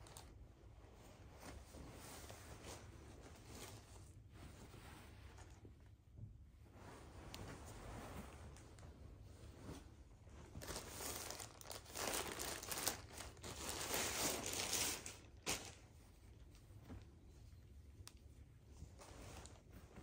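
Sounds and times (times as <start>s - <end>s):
fabric rustling: 0.0s - 20.0s
plastic bag crinkling: 10.6s - 15.8s
sharp plastic crackle: 10.6s - 15.8s.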